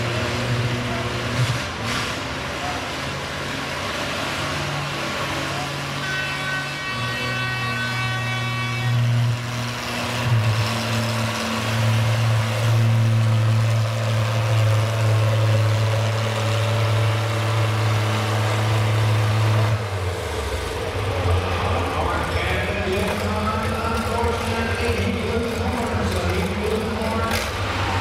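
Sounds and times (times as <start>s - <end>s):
tractor engine under load: 7.0s - 28.0s.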